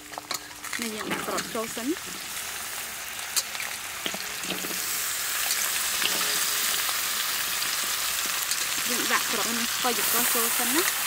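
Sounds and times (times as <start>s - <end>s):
food sizzling in hot oil: 0.0s - 11.0s.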